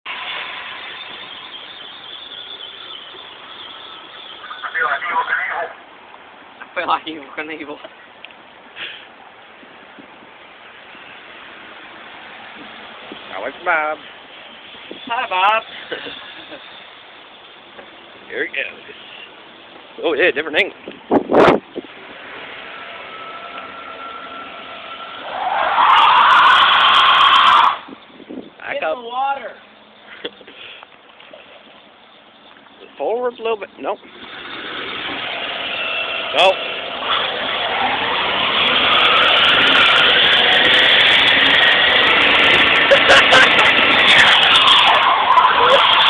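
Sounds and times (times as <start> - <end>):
tyres screeching on wet pavement: 0.1 - 46.0
pickup engine revving: 21.2 - 27.8, 34.0 - 46.0.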